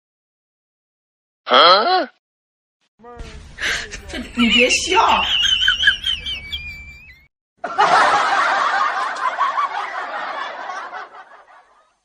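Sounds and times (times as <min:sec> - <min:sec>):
person giggling and laughing: 0:05.4 - 0:07.8.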